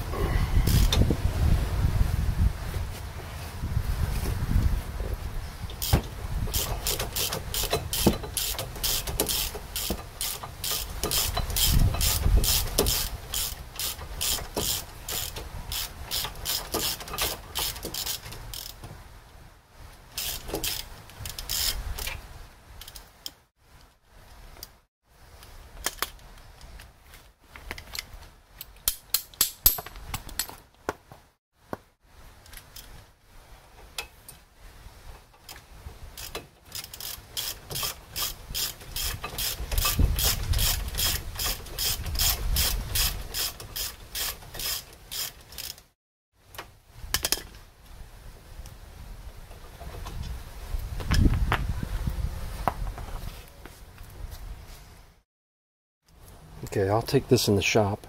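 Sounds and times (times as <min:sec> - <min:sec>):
ratchet wrench clicking: 0:00.7 - 0:01.0, 0:05.8 - 0:18.8, 0:20.2 - 0:21.8, 0:36.2 - 0:45.8.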